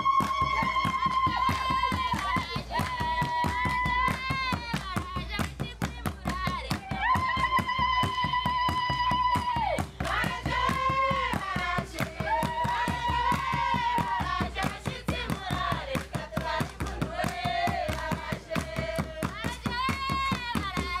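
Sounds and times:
rapid hand clapping: 0.0 - 21.0
group singing together: 0.2 - 4.8, 10.0 - 21.0.

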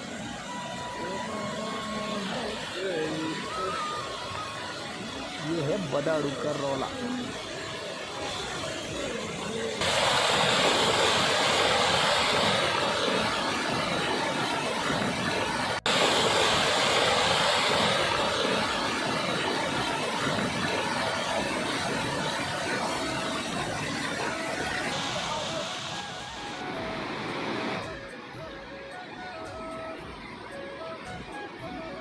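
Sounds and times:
stream rushing over rocks: 9.8 - 28.0.

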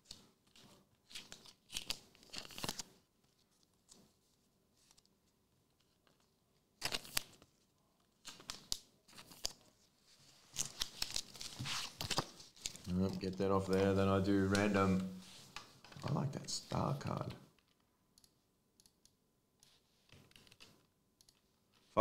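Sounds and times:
card wrappers crinkling and tearing: 1.0 - 2.9, 6.8 - 7.4, 10.6 - 13.4.

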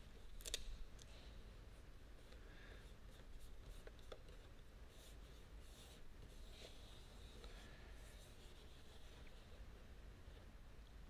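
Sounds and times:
small clicks: 0.4 - 1.1.

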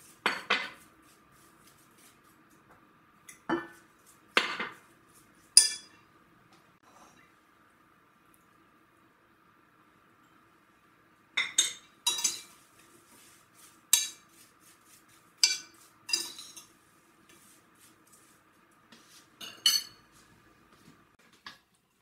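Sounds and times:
faint steady hum: 0.0 - 22.0
kitchenware clinking: 0.2 - 0.8, 4.4 - 4.8, 5.6 - 6.0, 11.4 - 12.6, 13.9 - 14.3, 15.4 - 16.8, 19.4 - 20.1.

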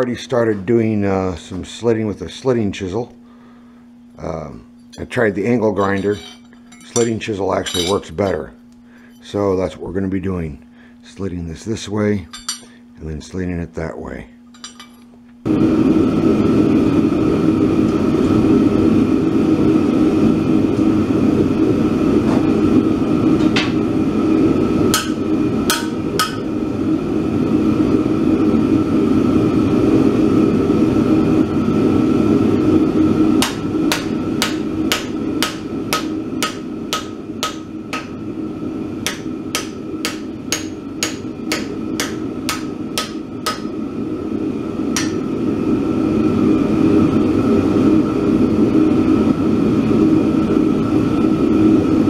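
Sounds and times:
hammer striking chisel on hot steel: 5.8 - 8.1, 12.3 - 12.7, 24.9 - 26.5, 33.4 - 38.2, 39.0 - 43.8, 45.0 - 45.3
loud steady drone: 23.9 - 49.4.

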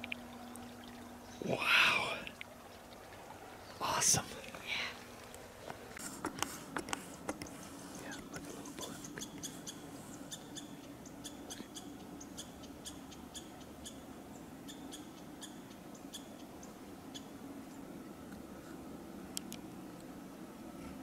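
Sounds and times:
faint high-pitched ticks: 6.2 - 14.0.

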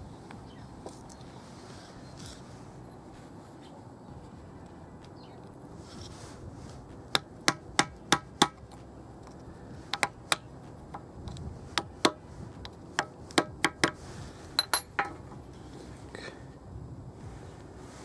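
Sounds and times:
hammer tapping metal: 7.1 - 8.7, 13.0 - 14.0, 14.6 - 15.2.

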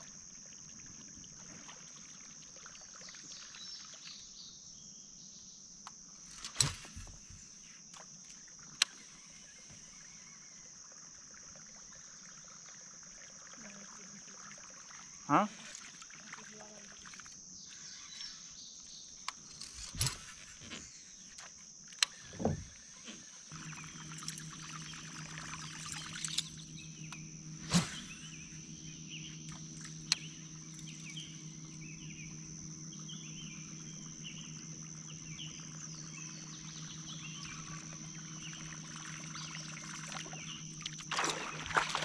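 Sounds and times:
steady low hum: 0.0 - 42.0
steady high whine: 17.8 - 42.0.

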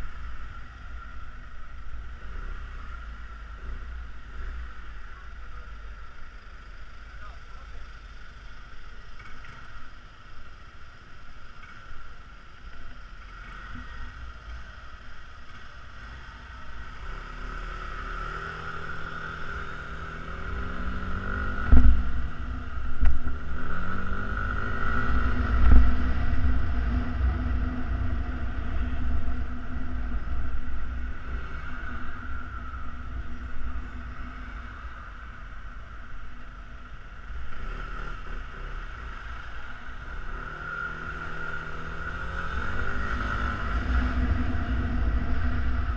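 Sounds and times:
wind rumble on microphone: 20.2 - 36.4, 42.2 - 45.9
wind thumps: 21.5 - 23.6.

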